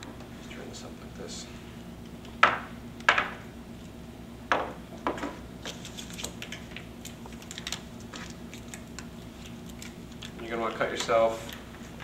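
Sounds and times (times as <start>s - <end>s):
tape backing crackling: 5.6s - 12.0s.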